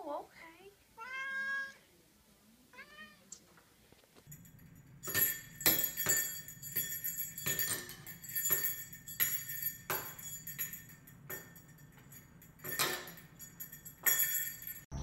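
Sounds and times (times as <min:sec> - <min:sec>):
bells jingling: 0:04.3 - 0:15.0.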